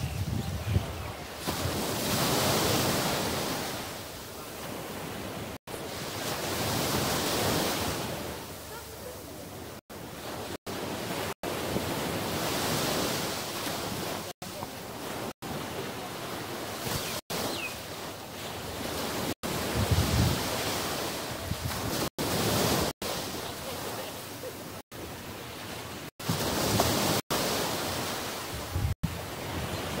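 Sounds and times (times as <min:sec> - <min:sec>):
wind buffeting microphone: 0:00.0 - 0:03.1, 0:19.4 - 0:22.9, 0:28.5 - 0:30.0
surf waves washing on sand: 0:00.0 - 0:30.0.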